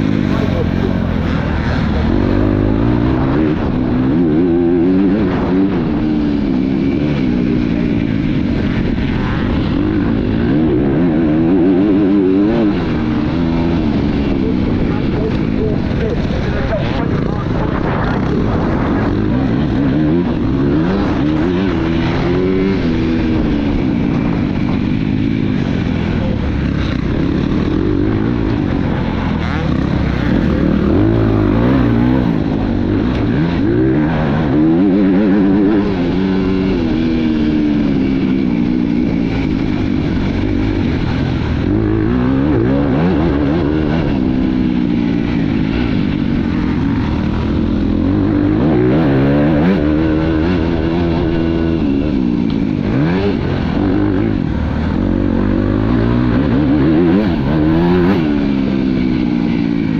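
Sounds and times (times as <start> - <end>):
motocross bike engine revving: 0.0 - 59.9.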